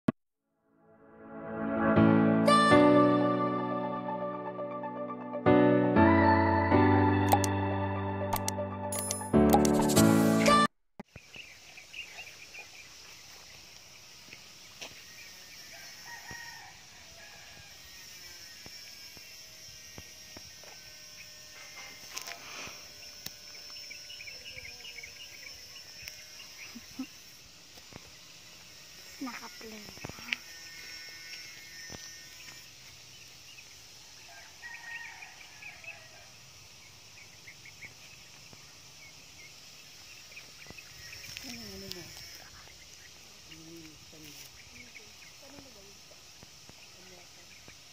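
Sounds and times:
click: 7.3 - 7.5, 8.3 - 9.7
bird chirps: 11.1 - 13.5
insects humming: 11.1 - 47.9
faint rooster crowing: 15.0 - 18.7, 34.0 - 36.5.

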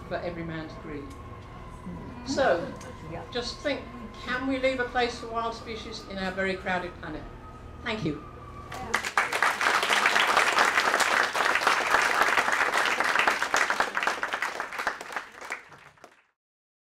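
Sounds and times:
audience applauding: 8.7 - 16.3.

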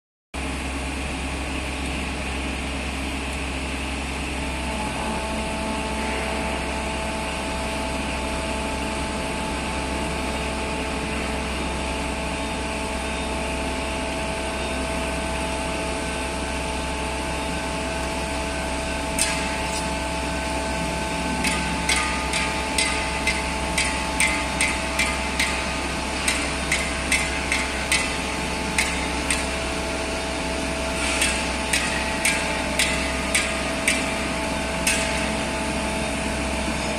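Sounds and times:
low machine hum: 0.4 - 36.9
steady machine whine: 0.5 - 36.9
sharp knocks: 26.2 - 29.5, 31.1 - 34.1.

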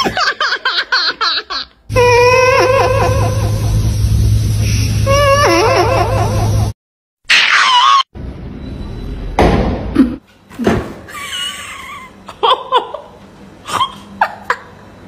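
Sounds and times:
thud: 9.4 - 9.9.

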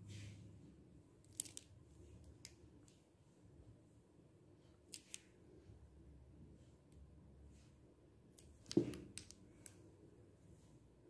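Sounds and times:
small objects clicking and tapping: 1.2 - 3.0.

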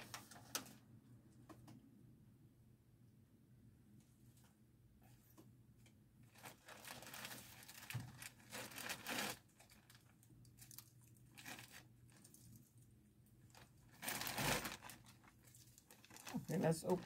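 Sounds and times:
plastic bag crinkling: 6.3 - 12.7, 13.5 - 17.0.

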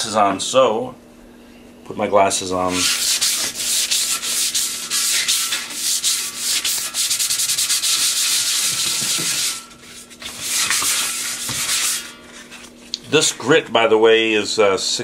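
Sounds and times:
sandpaper scratching on metal: 2.7 - 12.2.

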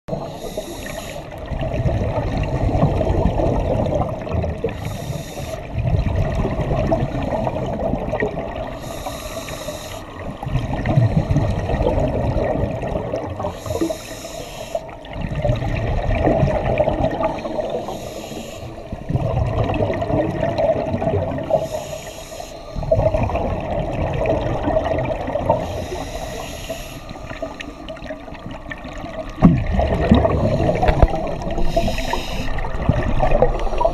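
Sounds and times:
regulator inhalation hiss: 0.1 - 1.4, 4.8 - 5.7, 8.7 - 10.2, 13.4 - 15.0, 17.4 - 18.9, 21.5 - 22.8, 25.6 - 28.0, 30.4 - 32.7
gurgle of exhaled bubbles: 1.3 - 8.9, 10.0 - 14.1, 14.9 - 21.8, 22.8 - 26.4, 27.2 - 33.9.

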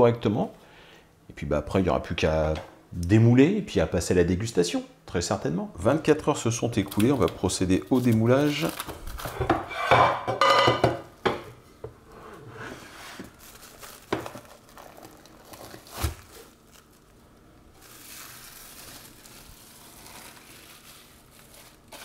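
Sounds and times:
cling film crinkling: 6.7 - 9.4, 13.2 - 22.0.

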